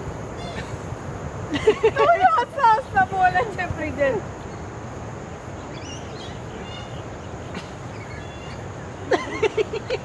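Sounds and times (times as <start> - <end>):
faint high bird chirps: 5.6 - 8.6.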